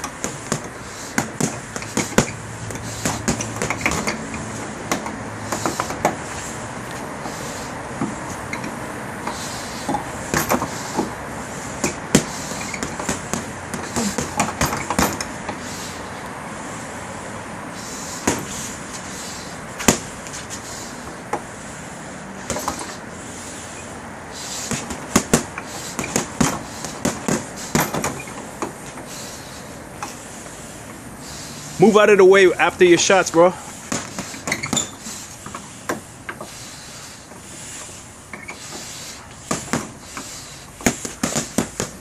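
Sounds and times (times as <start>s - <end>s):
gloves punching heavy bag: 0.0s - 4.2s, 9.8s - 11.2s, 11.8s - 15.3s, 18.2s - 18.6s, 19.8s - 20.1s, 24.6s - 28.4s, 33.9s - 35.0s, 39.5s - 40.2s, 40.8s - 42.0s.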